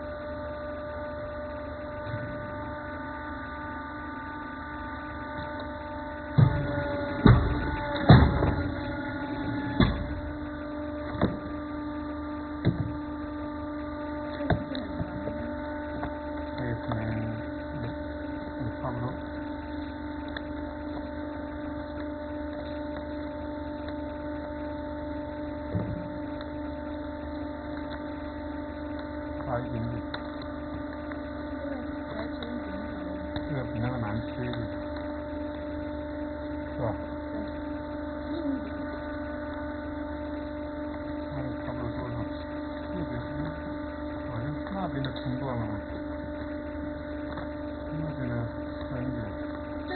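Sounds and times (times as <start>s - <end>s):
hydraulic press motor humming: 0.0s - 49.9s
sharp knocks and clicks: 9.7s - 10.2s.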